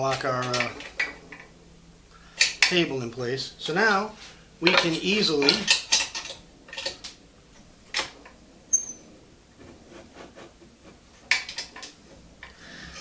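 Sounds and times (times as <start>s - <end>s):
high squeak: 8.7s - 9.1s
wooden knocks and scrapes: 9.5s - 12.3s.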